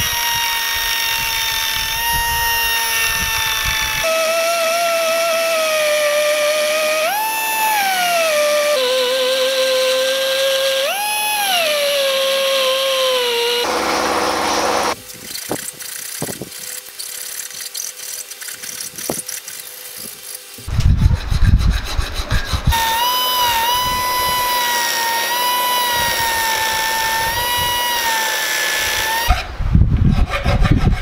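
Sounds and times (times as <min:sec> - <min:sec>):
rotary tool grinding steel: 0:00.0 - 0:31.0
hand file scraping steel: 0:12.5 - 0:31.0.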